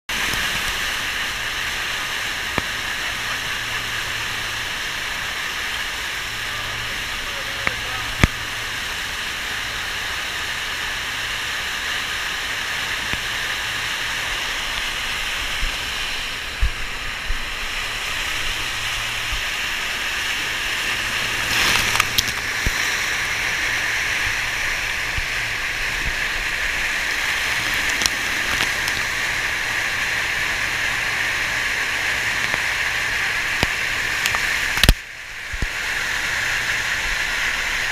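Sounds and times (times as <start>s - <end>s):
rushing water of wave machine: 0.1s - 37.9s
bodyboarder splashing: 18.2s - 30.2s.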